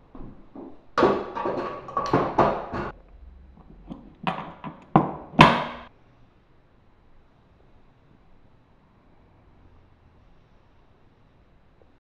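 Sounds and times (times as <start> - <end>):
metal tools rattling in toolbox: 1.0 - 3.0.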